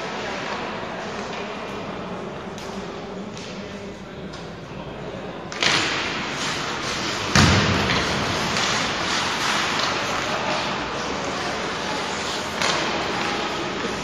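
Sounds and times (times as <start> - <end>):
hockey sticks clacking: 0.0 - 1.8, 2.5 - 3.6, 5.5 - 14.0
skates scraping on ice: 5.6 - 14.0.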